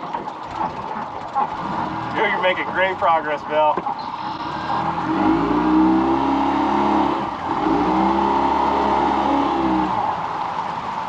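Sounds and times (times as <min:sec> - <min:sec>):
fishing reel cranking whir: 0:03.9 - 0:06.0.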